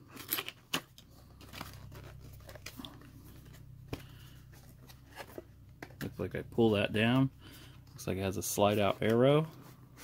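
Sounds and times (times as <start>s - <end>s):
cardboard flaps crinkling and scraping: 0.2s - 7.3s.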